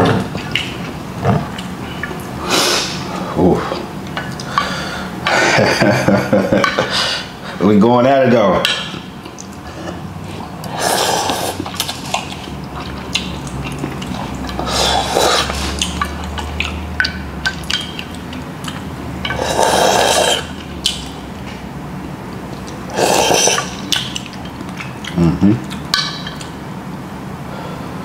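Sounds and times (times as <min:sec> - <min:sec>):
noodles slurped: 0:10.6 - 0:16.8, 0:17.6 - 0:21.0, 0:22.9 - 0:24.8.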